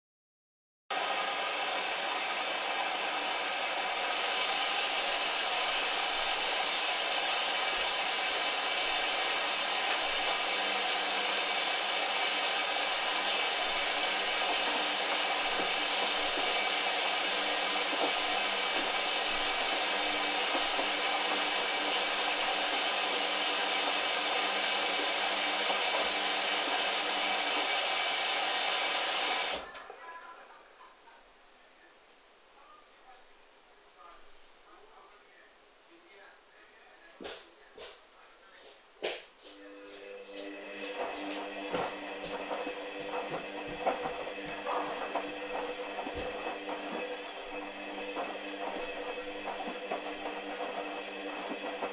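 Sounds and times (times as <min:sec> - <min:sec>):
water rushing into washing machine: 0:00.9 - 0:29.8, 0:40.0 - 0:51.9.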